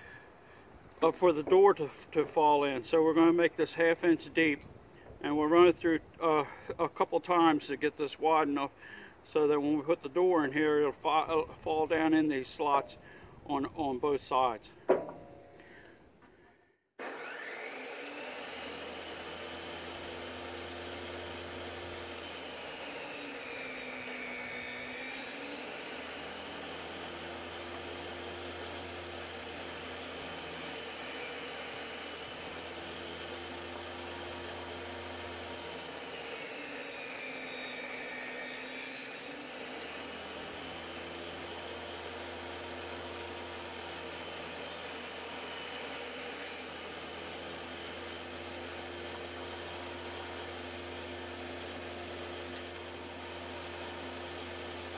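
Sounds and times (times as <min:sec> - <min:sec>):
table saw running: 0:17.0 - 0:54.9.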